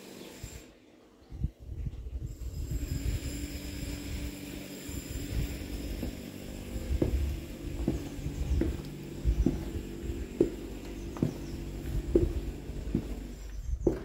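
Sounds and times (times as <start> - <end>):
low rumble: 1.7 - 14.0
footsteps going down stairs: 5.6 - 14.0.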